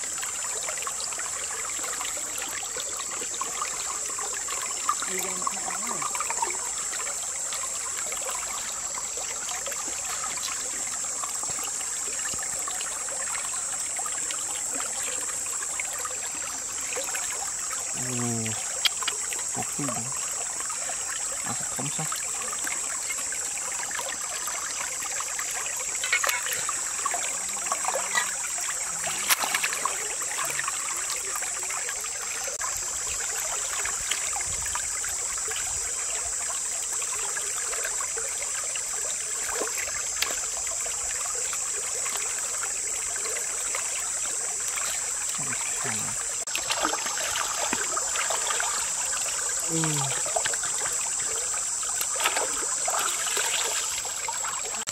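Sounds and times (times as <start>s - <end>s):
water splashing and sloshing: 0.0s - 54.9s
stream rushing: 43.7s - 54.9s.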